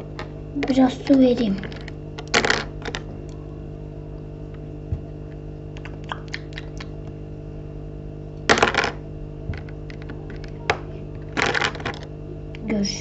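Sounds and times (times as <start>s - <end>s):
steady low hum: 0.0s - 13.0s
plastic bricks clicking: 0.6s - 3.0s.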